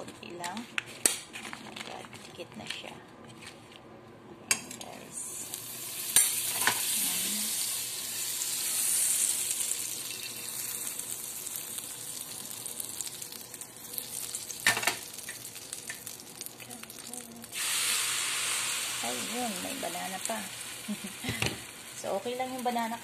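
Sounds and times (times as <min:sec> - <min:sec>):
butter sizzling in frying pan: 0:05.4 - 0:23.0.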